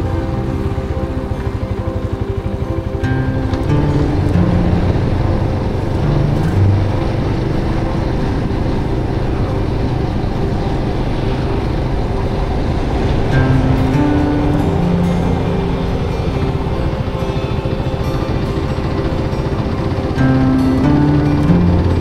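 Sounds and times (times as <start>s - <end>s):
motorbike engine running: 0.0s - 22.0s
wind noise: 0.0s - 22.0s.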